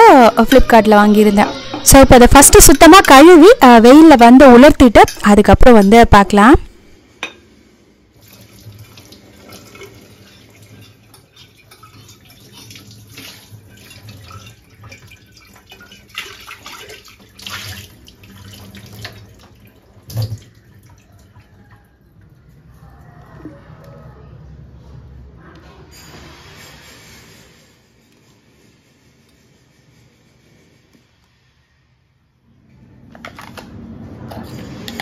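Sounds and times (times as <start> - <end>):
tap water running into sink: 8.2 - 21.5.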